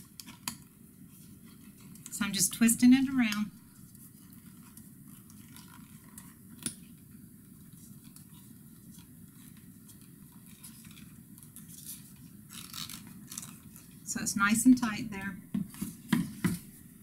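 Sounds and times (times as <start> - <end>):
clicks and rustles of twisted wire: 0.0 - 2.2, 3.3 - 14.1
low steady background hum: 0.0 - 17.0.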